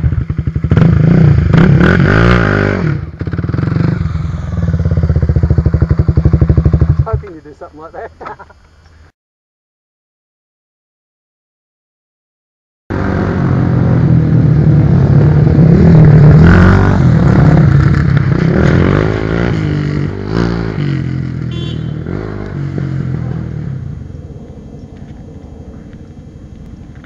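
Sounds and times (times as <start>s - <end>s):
trail bike engines revving: 0.0s - 9.1s, 12.9s - 27.0s.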